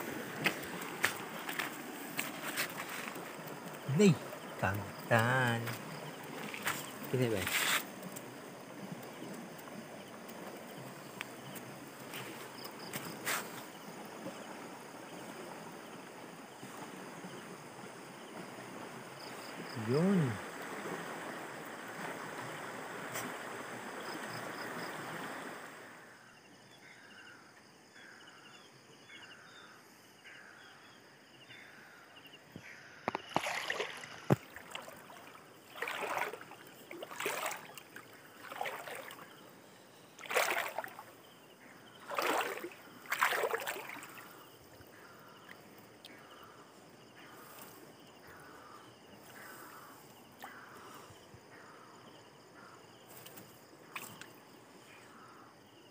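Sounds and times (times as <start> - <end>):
river water rushing over stones: 0.0 - 13.3, 33.2 - 39.3, 40.2 - 41.2, 42.0 - 44.4
splashes in shallow water: 0.0 - 15.9, 33.0 - 39.5, 40.2 - 46.6, 53.1 - 54.6.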